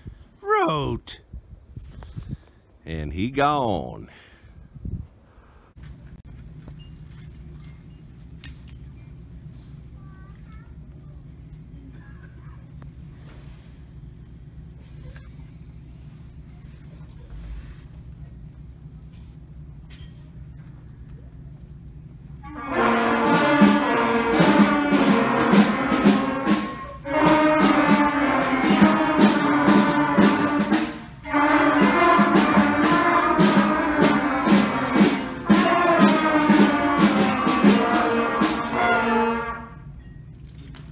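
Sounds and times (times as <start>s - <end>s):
concert band brass playing: 22.4s - 39.9s.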